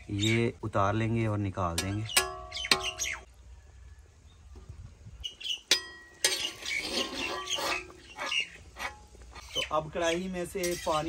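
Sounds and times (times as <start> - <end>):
metal spatula knocking on pan: 1.8 - 3.0
scraping and stirring in pan: 5.7 - 9.7.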